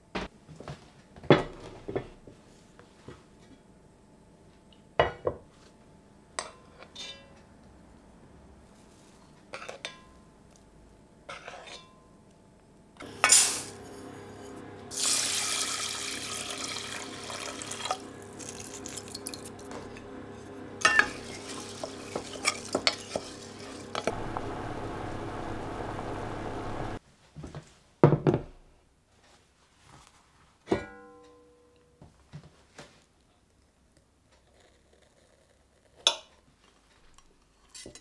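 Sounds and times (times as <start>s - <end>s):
pot thumps: 20.8s - 24.5s
water rushing: 23.4s - 27.0s.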